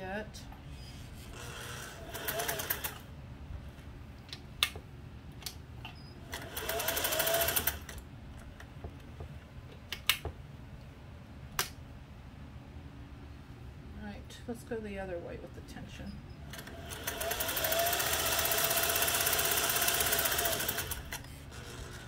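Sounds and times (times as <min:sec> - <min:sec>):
sewing machine stitching: 0:01.3 - 0:03.0, 0:06.3 - 0:08.0, 0:16.5 - 0:22.0.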